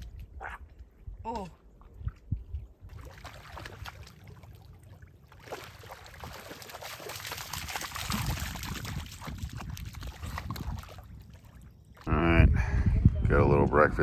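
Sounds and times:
dog splashing in shallow water: 0:02.9 - 0:11.7.

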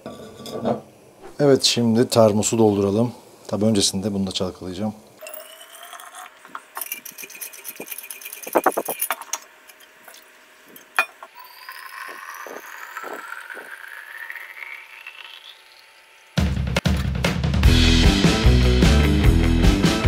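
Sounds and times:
music: 0:16.4 - 0:20.0.

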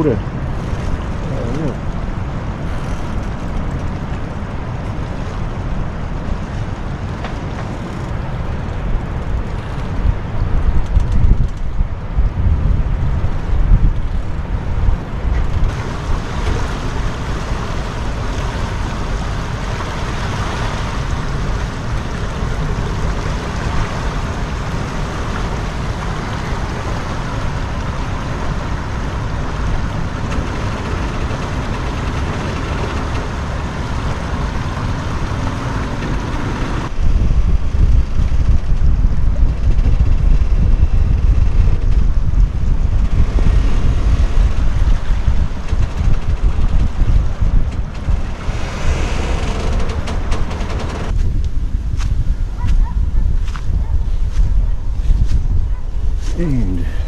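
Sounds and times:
wind buffeting microphone: 0:00.0 - 0:57.0
river water rushing: 0:15.7 - 0:31.2.

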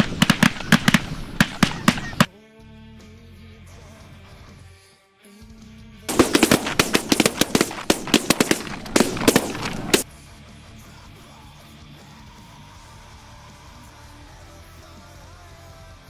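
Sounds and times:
rapid shotgun fire: 0:00.0 - 0:02.3, 0:06.1 - 0:10.1.

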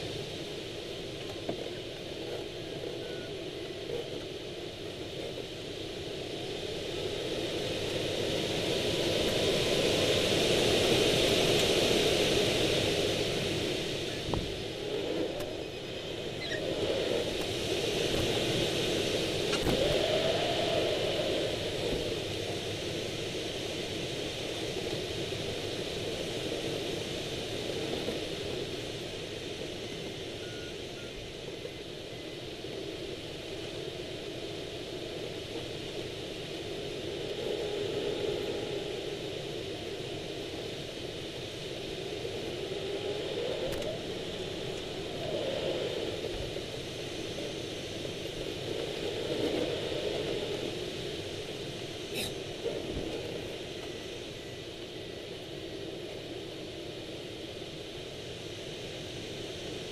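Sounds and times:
rushing airflow over glider: 0:00.0 - 0:59.9.

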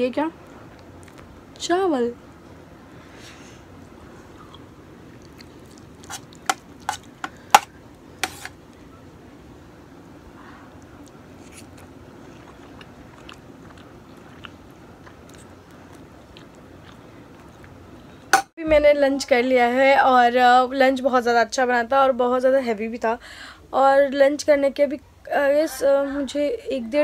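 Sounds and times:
chewing: 0:04.4 - 0:07.6, 0:10.8 - 0:18.0.

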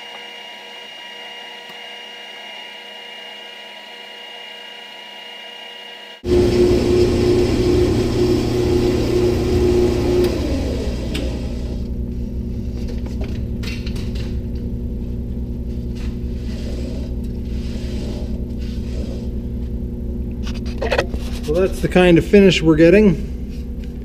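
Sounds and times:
lathe humming: 0:00.0 - 0:12.5
lathe cutting steel: 0:00.3 - 0:11.9.

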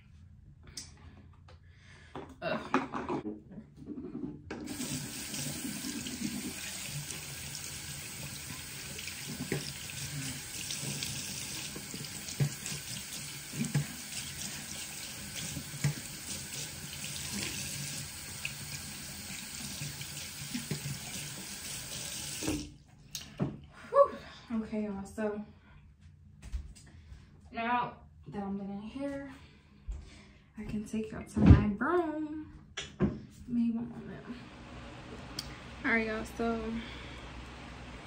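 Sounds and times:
tap water running into basin: 0:04.5 - 0:22.7.

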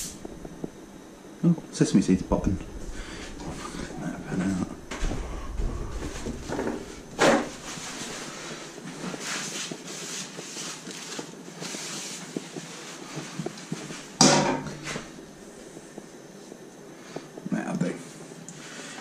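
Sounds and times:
paper towel rubbing frying pan: 0:06.5 - 0:15.2.

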